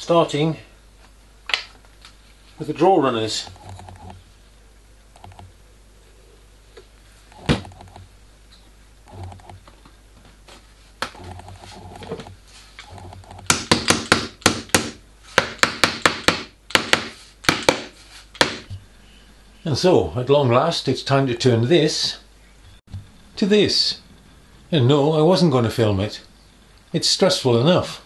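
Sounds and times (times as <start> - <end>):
quiet handling: 0.9 - 4.5, 6.2 - 13.5.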